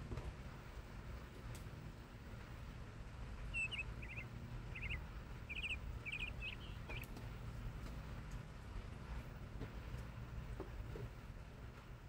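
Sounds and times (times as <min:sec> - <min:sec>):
low background rumble: 0:00.0 - 0:12.0
small songbird chirping: 0:03.4 - 0:07.2.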